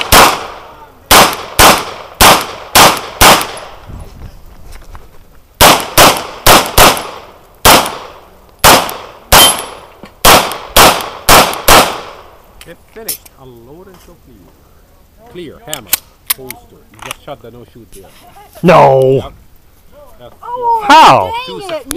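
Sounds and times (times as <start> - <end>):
pistol shots: 0.0 - 3.7, 5.6 - 12.2.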